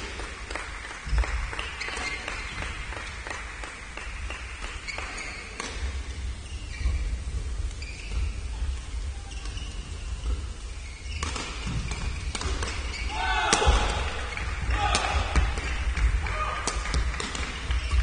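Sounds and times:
shoes squeaking on floor: 1.2s - 3.2s, 4.6s - 14.5s, 17.4s - 18.0s
rackets striking shuttlecock: 11.1s - 18.0s.

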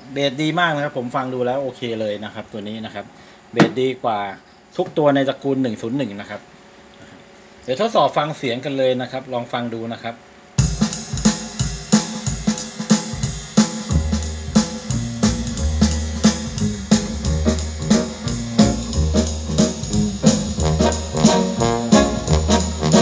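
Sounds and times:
drum kit beat: 10.6s - 23.0s
held bass notes: 13.9s - 23.0s
brass: 15.2s - 23.0s.

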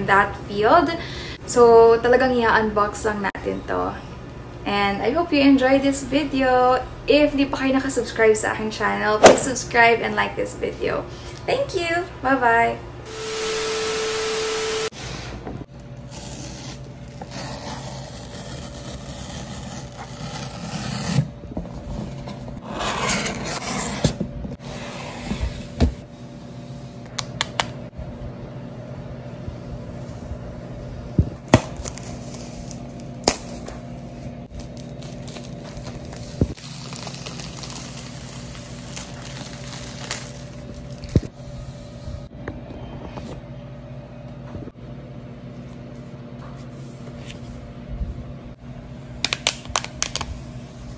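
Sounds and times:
burst of static: 13.1s - 14.9s
steady tone: 13.1s - 14.9s
plastic wrap crinkling: 34.5s - 41.3s.

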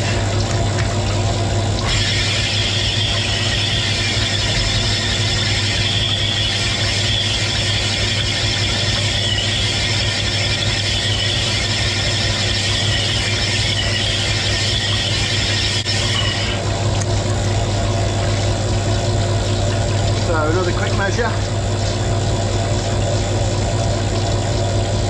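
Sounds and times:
steady motor hum: 0.0s - 25.0s
honing stone hissing in cylinder: 1.9s - 16.6s.

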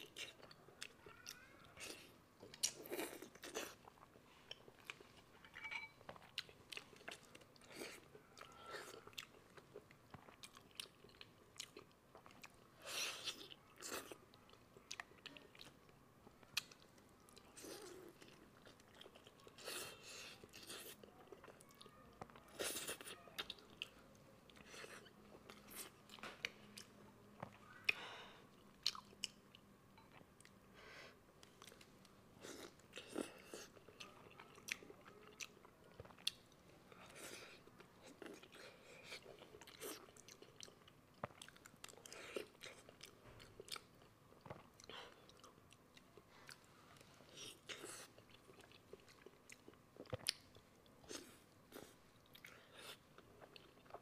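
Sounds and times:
close chewing and biting: 31.4s - 54.0s.

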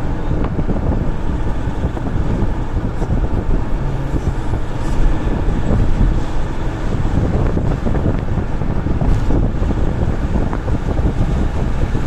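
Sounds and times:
car road and wind noise: 0.0s - 12.0s.

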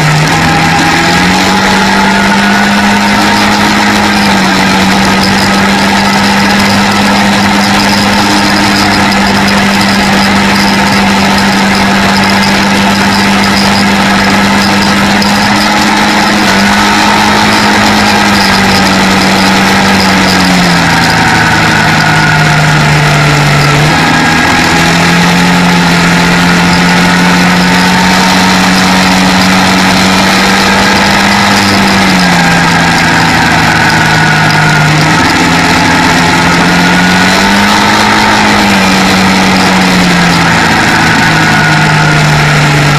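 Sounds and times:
quad bike engine running: 0.0s - 42.9s
road noise: 0.0s - 42.9s.

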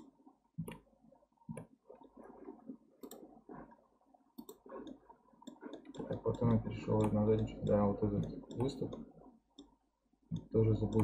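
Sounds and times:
mouse and keyboard clicks: 4.4s - 9.0s, 10.3s - 11.0s.

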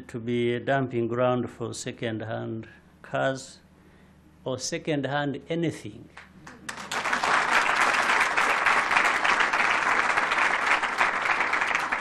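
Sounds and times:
audience applauding: 6.2s - 12.0s.

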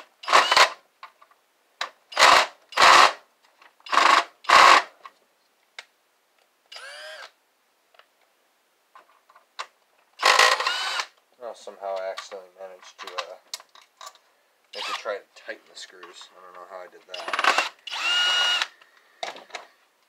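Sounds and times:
cordless drill driving screws: 0.2s - 0.8s, 3.9s - 4.8s, 6.7s - 7.3s, 10.2s - 11.2s, 14.7s - 15.1s, 17.1s - 18.7s.

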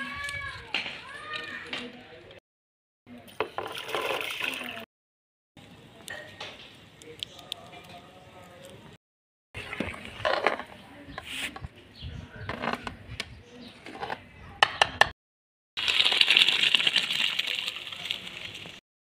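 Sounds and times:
water draining through colander: 15.8s - 18.8s.

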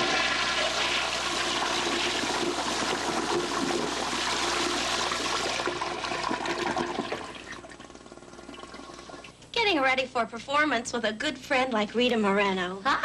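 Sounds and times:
toilet flushing: 0.0s - 9.4s.

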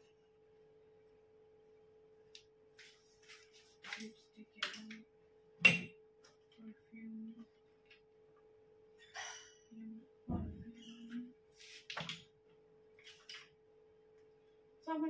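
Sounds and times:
steady hum: 0.0s - 15.0s
items rustling and clicking: 13.0s - 13.6s.

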